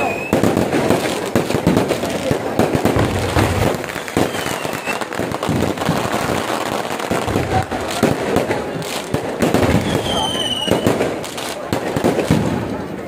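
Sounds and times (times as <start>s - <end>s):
firework whistle: 0.0s - 0.9s, 2.9s - 6.0s, 9.5s - 11.3s
fireworks bursting and crackling: 0.0s - 13.0s.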